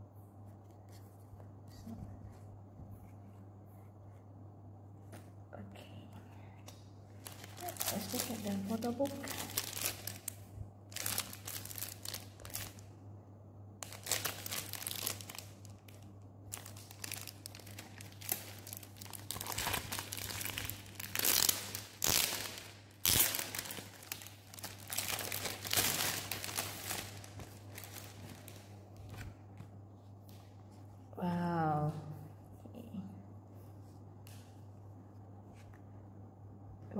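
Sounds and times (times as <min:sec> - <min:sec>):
plastic wrap crinkling and tearing: 0:07.2 - 0:12.9, 0:13.8 - 0:29.4.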